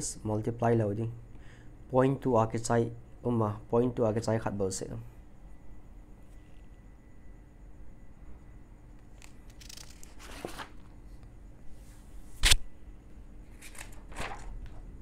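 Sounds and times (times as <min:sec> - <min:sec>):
paper rustling: 0:09.5 - 0:10.9, 0:13.5 - 0:14.9.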